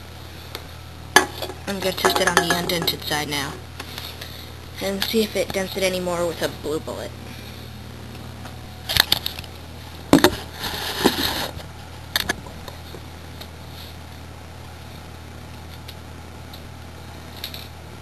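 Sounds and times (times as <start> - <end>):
low hum of room noise: 0.0 - 18.0
rustling scrape: 10.4 - 11.6.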